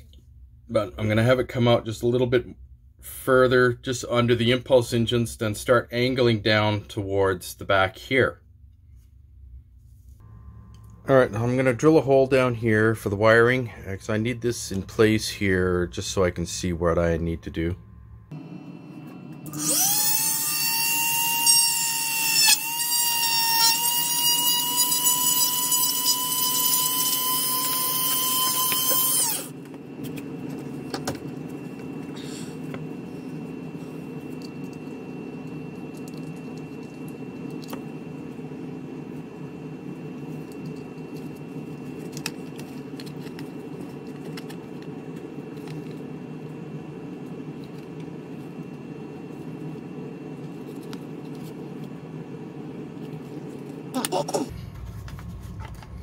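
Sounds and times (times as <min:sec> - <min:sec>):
low hum: 0:00.0 - 0:56.0
rotary tool whining: 0:19.1 - 0:29.7.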